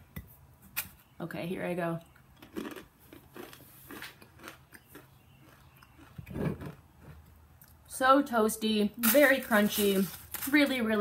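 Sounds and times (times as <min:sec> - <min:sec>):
person chewing crunchy granola: 0:02.1 - 0:07.2.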